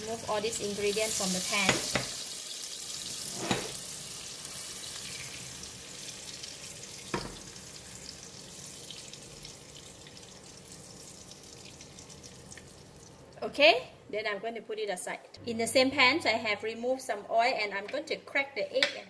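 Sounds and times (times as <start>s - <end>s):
oil sizzling in a wok: 0.0s - 13.4s.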